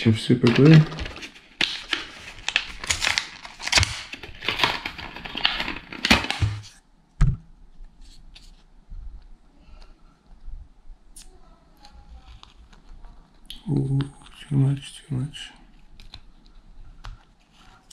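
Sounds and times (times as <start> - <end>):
blister pack crinkling and tearing: 0.4 - 6.6, 11.8 - 14.5.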